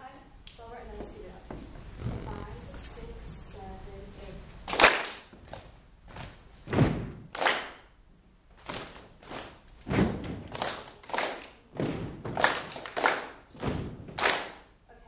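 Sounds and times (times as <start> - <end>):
hand claps: 4.7 - 6.3, 7.2 - 7.9, 10.3 - 14.7
foot stomps on floor: 6.2 - 7.2, 9.3 - 10.5, 13.6 - 14.2.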